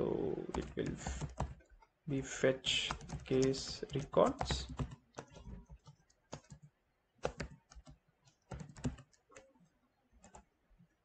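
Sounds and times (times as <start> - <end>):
typing on keyboard: 0.4 - 1.9, 2.6 - 9.6, 10.2 - 10.5.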